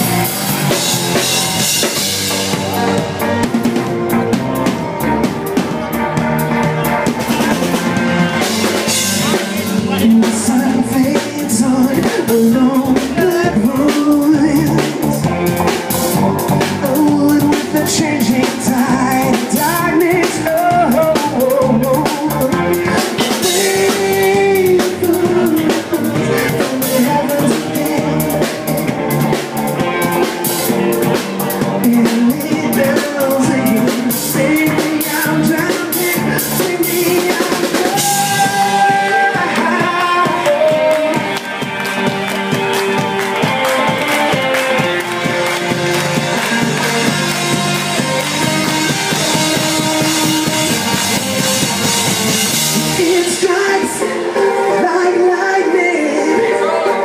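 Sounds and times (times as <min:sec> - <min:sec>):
drum kit beat: 0:00.0 - 0:55.0
live band playing: 0:00.0 - 0:57.0
person singing through pa: 0:09.8 - 0:15.5, 0:16.6 - 0:29.0, 0:31.7 - 0:41.6, 0:52.8 - 0:57.0.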